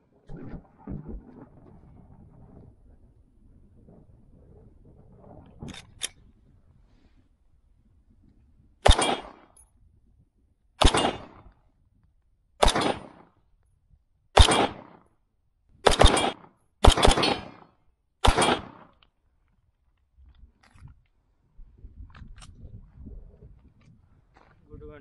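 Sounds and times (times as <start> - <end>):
gunshots with echo: 8.8 - 9.5, 10.8 - 11.5, 12.6 - 13.3, 14.4 - 15.0, 15.8 - 19.0.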